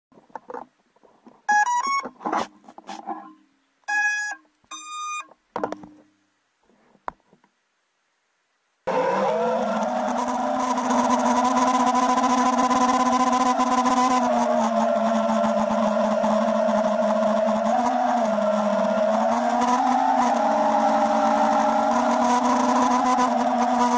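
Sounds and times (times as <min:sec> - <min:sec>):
short electronic beeps: 0:01.5 - 0:02.1, 0:03.9 - 0:05.3
quadcopter motors whining: 0:08.9 - 0:23.9.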